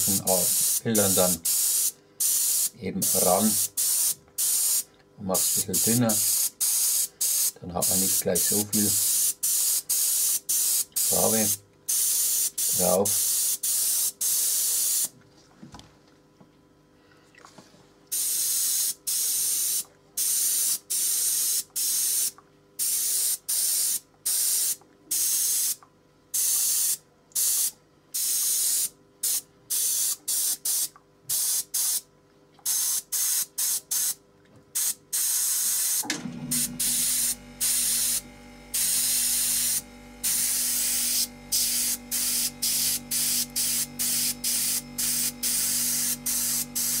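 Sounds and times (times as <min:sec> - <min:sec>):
airbrush hissing bursts: 0:00.0 - 0:04.8, 0:05.4 - 0:15.1, 0:18.1 - 0:25.8, 0:26.4 - 0:32.0, 0:32.7 - 0:34.2, 0:34.8 - 0:47.0
steady low hum: 0:36.0 - 0:47.0.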